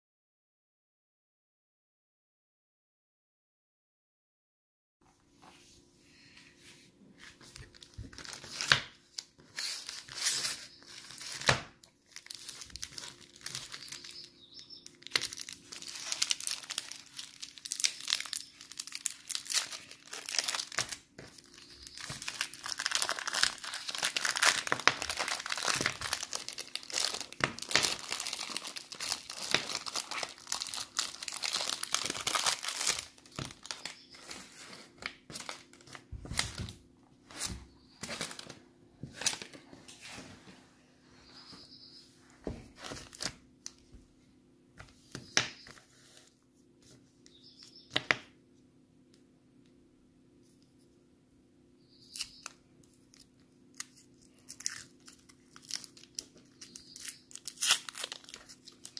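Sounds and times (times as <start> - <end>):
candy wrapper crinkling: 7.6 - 34.4, 52.1 - 58.9.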